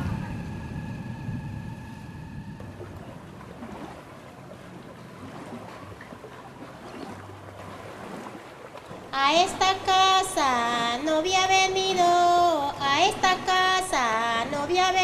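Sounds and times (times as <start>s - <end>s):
water lapping: 0.0s - 15.0s
wind: 0.0s - 15.0s.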